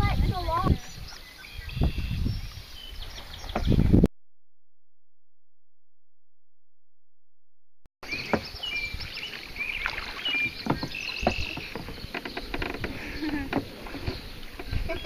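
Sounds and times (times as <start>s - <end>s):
birds calling: 0.6s - 4.0s, 8.0s - 15.0s
kayak paddling on water: 8.0s - 15.0s.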